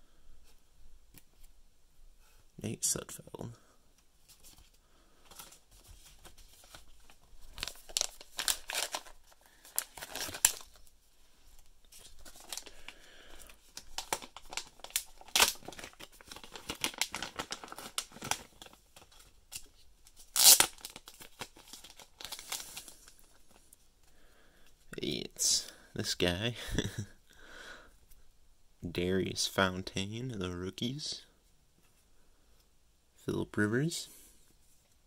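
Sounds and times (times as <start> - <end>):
plastic crinkling: 4.3 - 23.8
plastic pouch tearing: 6.5 - 10.9, 12.0 - 12.8, 13.7 - 23.2.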